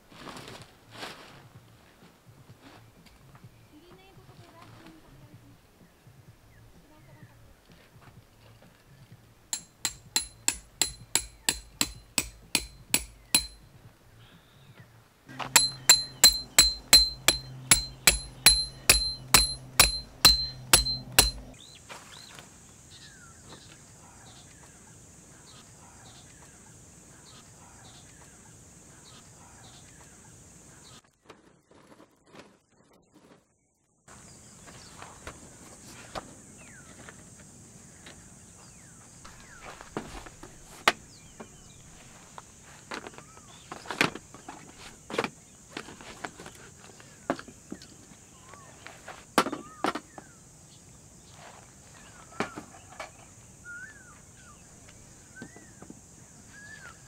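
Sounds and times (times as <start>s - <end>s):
hammer striking metal stakes: 9.5s - 13.7s, 15.3s - 21.6s.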